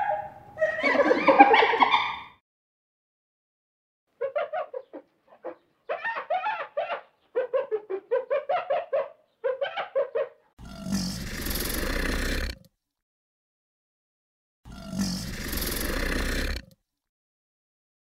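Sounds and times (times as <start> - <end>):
hyena giggling: 0.6 - 2.2, 7.3 - 10.4.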